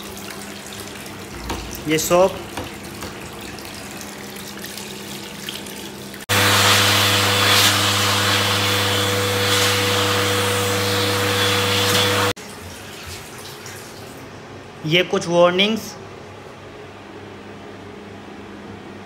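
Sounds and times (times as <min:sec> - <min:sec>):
electric hand dryer blowing: 0:06.3 - 0:12.4.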